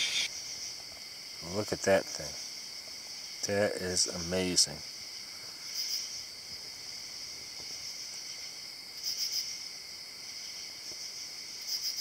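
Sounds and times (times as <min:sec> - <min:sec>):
pulsed insect chirps: 0:00.0 - 0:00.7
insects trilling: 0:00.0 - 0:12.0.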